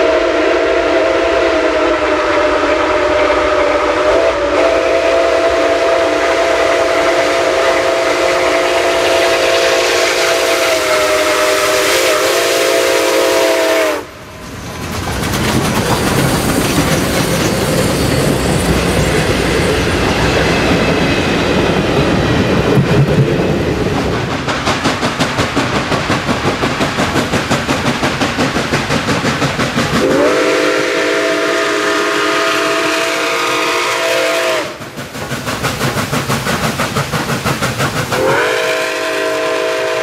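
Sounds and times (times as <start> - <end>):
steam chime whistle: 0.0 - 14.1, 16.9 - 21.1, 30.0 - 34.8, 38.2 - 40.0
steam locomotive wheels rumbling: 0.0 - 40.0.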